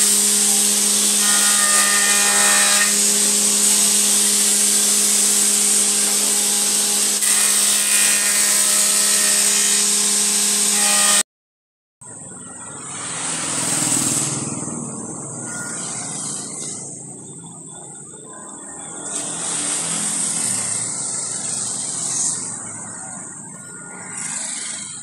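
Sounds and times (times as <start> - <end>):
circular saw humming: 0.0 - 11.2
road traffic: 12.0 - 25.0
vehicle passing: 12.8 - 17.5.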